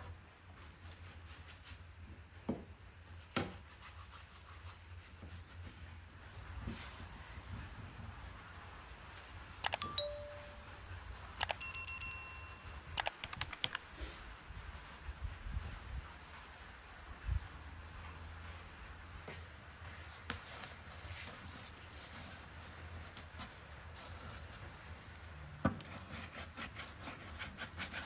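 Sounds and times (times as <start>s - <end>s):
sharp bell-like clinks: 9.6s - 10.8s, 11.4s - 13.8s.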